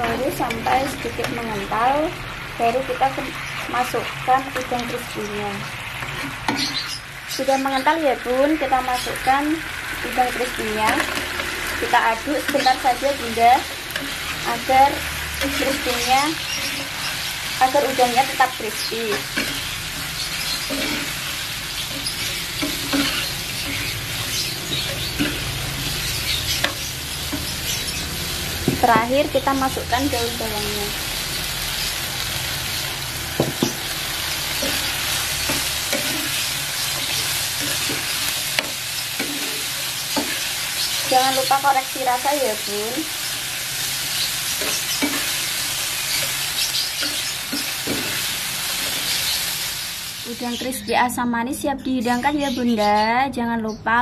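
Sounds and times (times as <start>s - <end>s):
steady sizzle in frying pan: 0.0s - 51.1s
spatula scraping pan: 10.2s - 31.0s, 33.3s - 49.5s.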